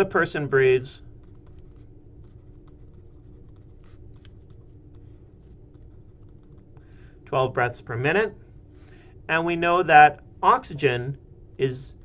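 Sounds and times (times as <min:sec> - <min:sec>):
low electrical hum: 0:00.0 - 0:12.0
stylus tapping and scratching tablet: 0:01.0 - 0:06.9.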